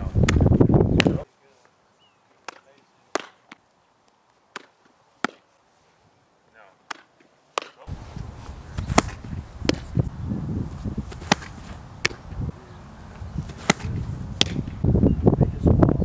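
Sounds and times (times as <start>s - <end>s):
wind rumble on microphone: 0.0s - 1.2s, 7.9s - 16.0s
ball smacking into mitt: 2.4s - 3.6s, 4.5s - 5.4s, 8.4s - 10.1s, 11.0s - 12.3s, 13.4s - 14.8s
ball popping into glove: 8.4s - 10.1s, 11.1s - 12.3s, 13.4s - 14.8s.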